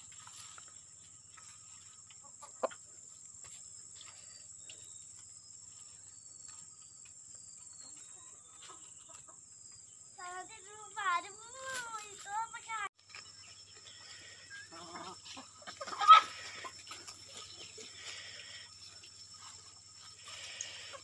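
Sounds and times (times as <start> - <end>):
high insect drone: 0.0 - 21.0
hens clucking softly: 2.0 - 3.1, 13.9 - 18.7.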